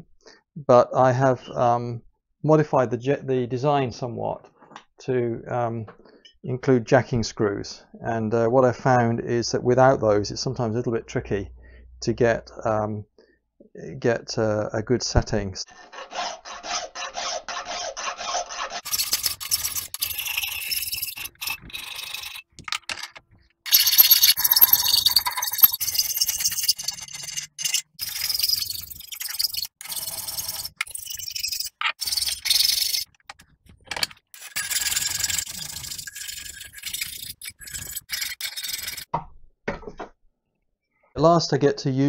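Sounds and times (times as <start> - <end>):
hand files rasping on iron: 15.7 - 22.6.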